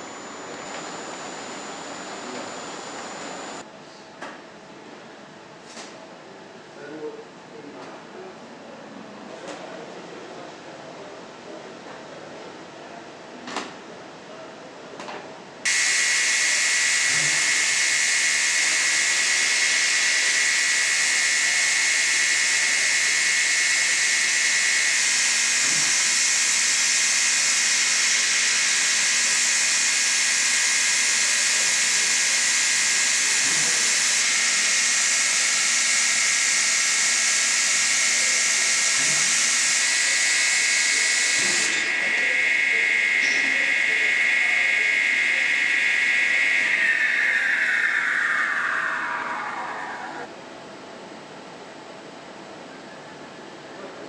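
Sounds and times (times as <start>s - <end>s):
machine hiss with high whine: 0.0s - 3.7s, 15.7s - 50.4s
quiet machine background: 0.0s - 4.4s.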